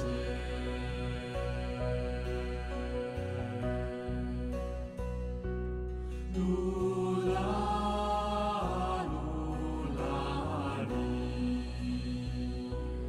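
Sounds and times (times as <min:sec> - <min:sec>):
held drone tones: 0:00.0 - 0:05.4.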